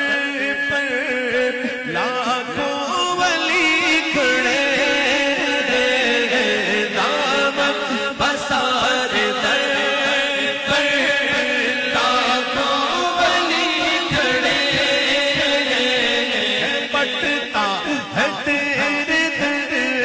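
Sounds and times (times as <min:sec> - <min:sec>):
man singing long lines: 0:00.0 - 0:20.0
voices chanting along: 0:04.5 - 0:20.0.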